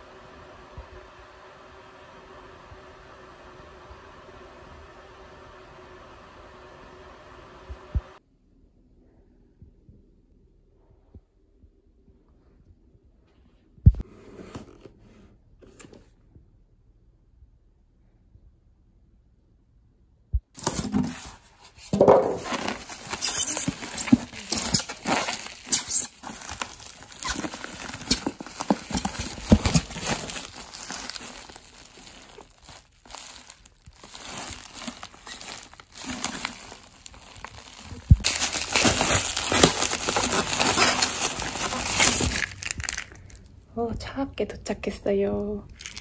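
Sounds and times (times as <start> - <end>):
bubble wrap crinkling: 20.6 - 43.5, 45.8 - 46.0.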